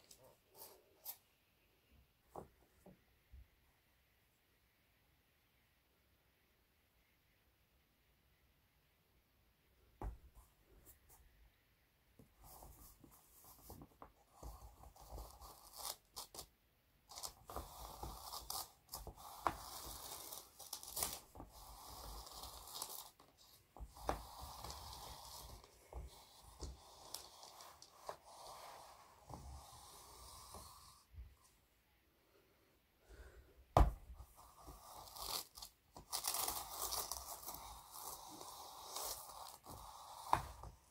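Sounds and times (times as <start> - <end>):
pencils scratching on paper: 17.1 - 31.1, 34.2 - 40.9.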